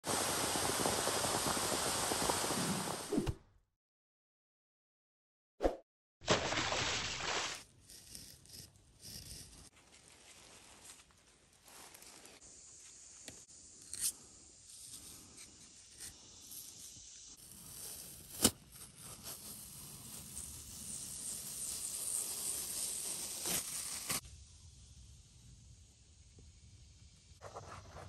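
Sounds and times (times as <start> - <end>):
knife scraping bark: 7.6 - 9.7, 13.8 - 14.2.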